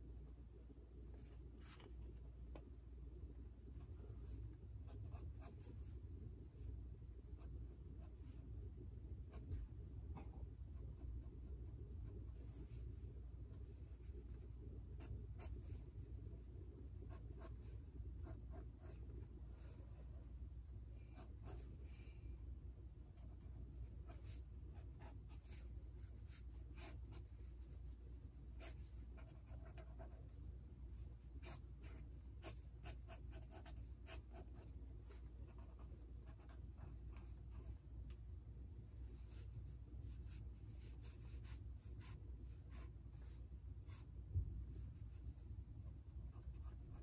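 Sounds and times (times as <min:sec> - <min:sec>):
faint low hum: 0:00.0 - 0:47.0
pen scratching on paper: 0:04.2 - 0:05.9, 0:17.0 - 0:19.8, 0:21.1 - 0:21.8, 0:23.2 - 0:30.3, 0:31.0 - 0:37.8, 0:39.2 - 0:44.1, 0:46.3 - 0:47.0.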